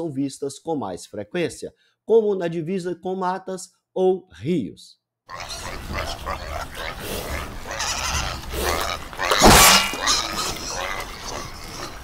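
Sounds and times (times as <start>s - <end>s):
pigs grunting and calling: 5.3s - 12.0s.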